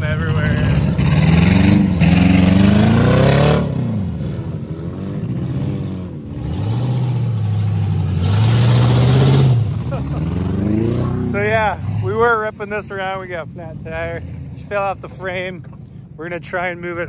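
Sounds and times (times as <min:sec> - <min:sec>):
pickup truck engine revving: 0:00.0 - 0:12.5.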